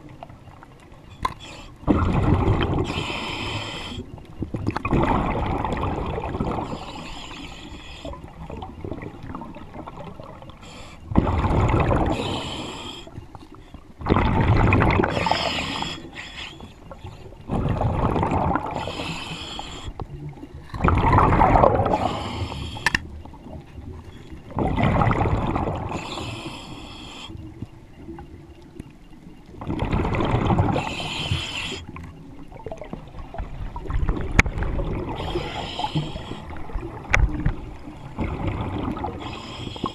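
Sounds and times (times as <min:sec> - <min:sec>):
diver breathing through regulator: 0:02.7 - 0:04.2, 0:06.5 - 0:08.4, 0:10.6 - 0:13.8, 0:15.0 - 0:20.0, 0:21.7 - 0:23.1, 0:25.8 - 0:27.4, 0:30.6 - 0:31.9, 0:35.1 - 0:36.8, 0:39.1 - 0:39.9.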